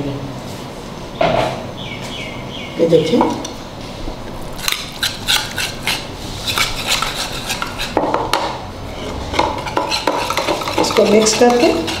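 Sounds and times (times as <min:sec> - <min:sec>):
whisk beating cream in bowl: 0:04.9 - 0:08.0, 0:09.5 - 0:12.0.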